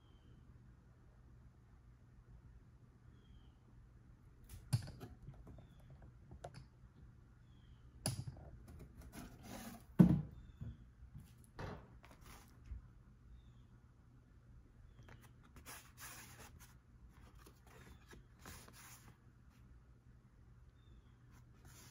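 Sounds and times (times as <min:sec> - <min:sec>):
cardboard and paper rustling: 0:12.0 - 0:12.7, 0:15.1 - 0:19.6.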